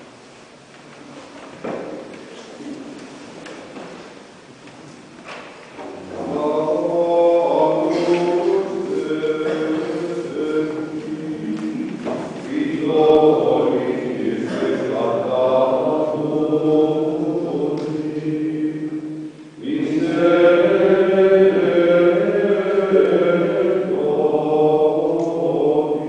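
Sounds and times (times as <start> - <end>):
choir singing chant: 6.0 - 26.0.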